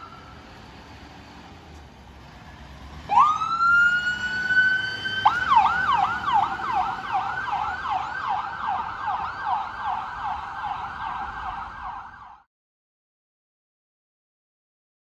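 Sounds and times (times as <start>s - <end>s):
emergency siren yelping: 0.0s - 0.7s, 3.0s - 12.5s.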